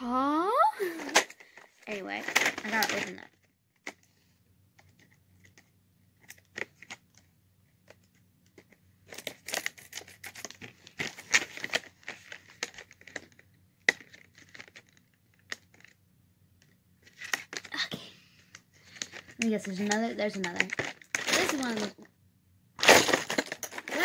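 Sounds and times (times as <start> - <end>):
packaging tearing and crinkling: 9.1 - 15.9, 18.9 - 21.9, 22.8 - 24.0.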